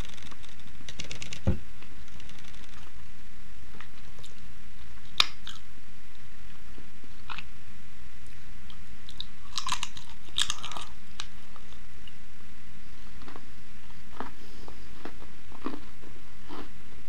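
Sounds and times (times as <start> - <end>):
chewing crunchy pastry: 8.7 - 11.8, 13.2 - 16.8.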